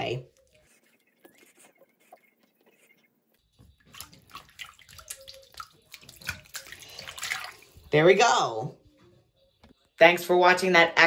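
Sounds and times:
water splashing in sink: 3.7 - 8.0.

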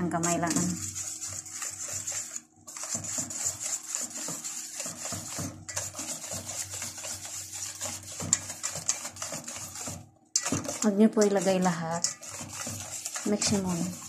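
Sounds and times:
rubbing of plastic and metal: 0.2 - 14.0.

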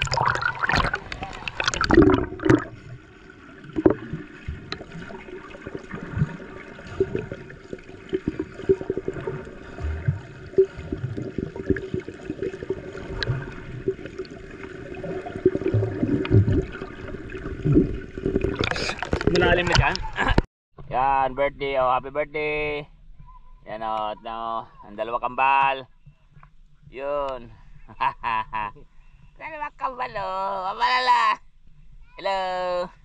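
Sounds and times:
water splash: 0.0 - 20.4.

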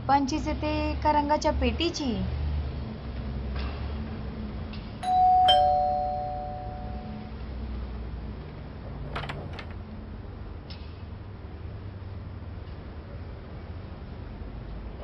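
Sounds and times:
two-tone doorbell chime: 5.0 - 7.3.

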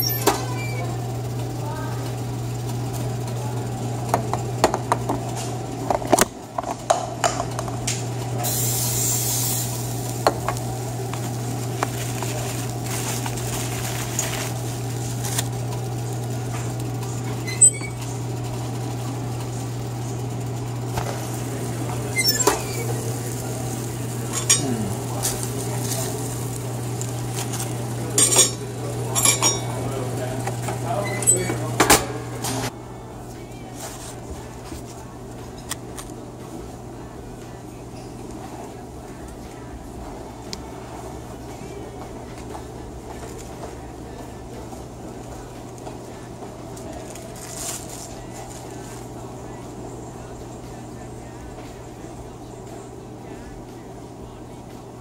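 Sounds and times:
steady low hum: 0.0 - 55.0
metal tongs clinking: 22.1 - 26.2, 27.3 - 29.9.

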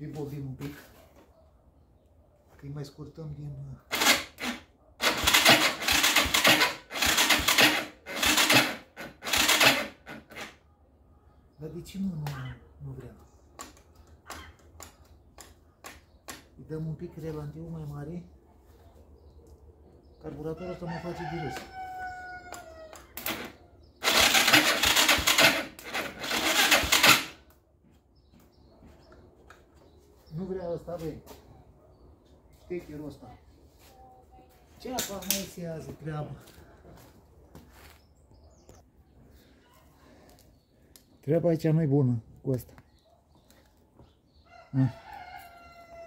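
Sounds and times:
engine electric starter cranking: 3.9 - 10.6, 23.2 - 27.4.

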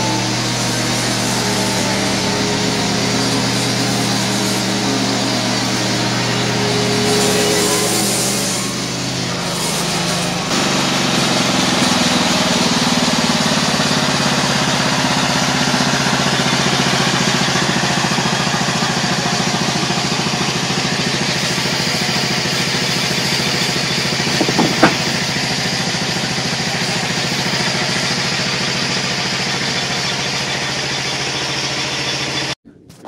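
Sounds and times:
bandsaw mill engine running: 0.0 - 32.6
sharp knocks: 24.4 - 25.2.

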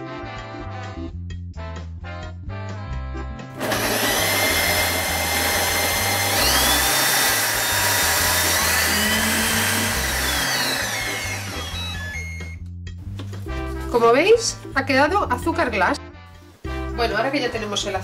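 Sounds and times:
background music: 0.0 - 18.0
food processor whirring: 3.6 - 12.6.

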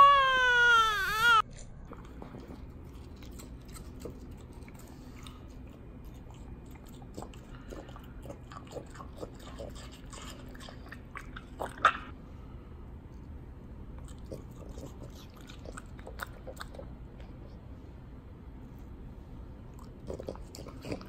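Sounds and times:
dog chewing watermelon: 1.5 - 12.1, 19.8 - 21.0.

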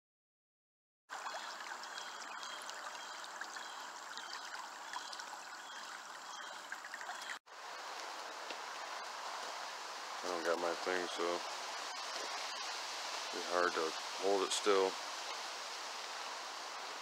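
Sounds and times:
stream trickling over rocks: 1.1 - 17.0.

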